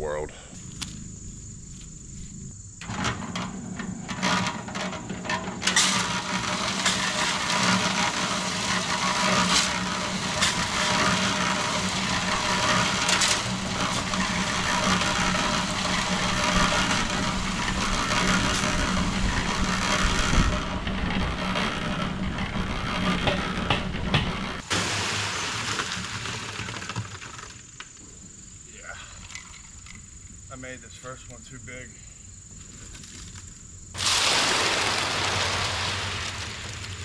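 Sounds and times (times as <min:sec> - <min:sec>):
cement mixer humming: 0:00.6 - 0:27.8
gravel rattling in drum: 0:00.6 - 0:30.8.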